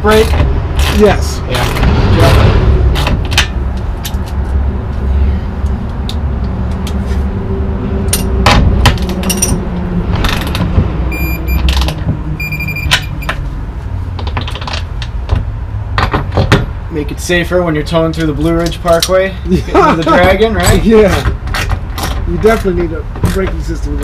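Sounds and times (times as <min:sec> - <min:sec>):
steady low rumble: 0:00.0 - 0:15.9.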